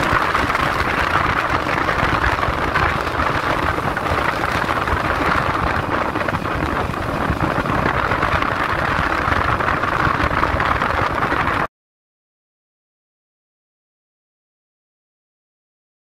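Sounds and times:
motorcycle engine rumble: 0:00.0 - 0:11.7
wind and road noise: 0:00.0 - 0:11.7.

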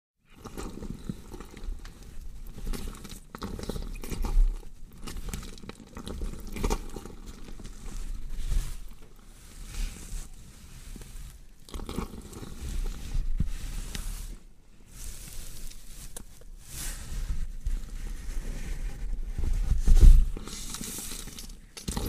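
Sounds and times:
flesh crunching and tearing: 0:00.4 - 0:09.1.

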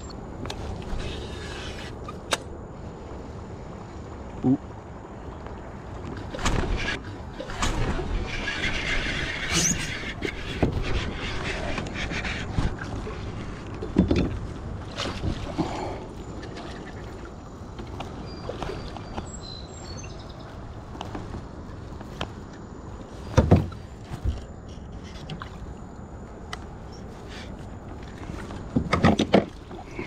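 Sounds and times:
birds chirping: 0:15.6 - 0:21.0.

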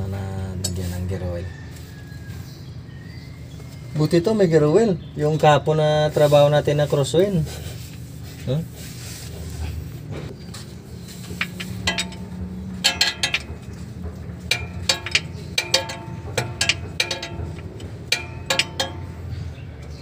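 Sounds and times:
wrench clinking on bolt: 0:11.4 - 0:19.3.

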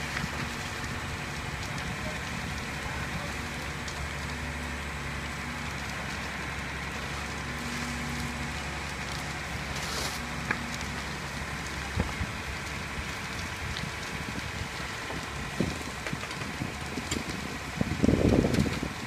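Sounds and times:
fire engine droning: 0:00.0 - 0:19.0
house fire crackling: 0:00.0 - 0:19.0
fire hose hissing: 0:06.1 - 0:13.1.

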